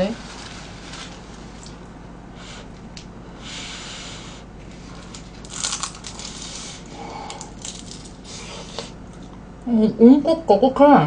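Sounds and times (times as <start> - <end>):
crispy fried crust crunching: 4.9 - 8.2.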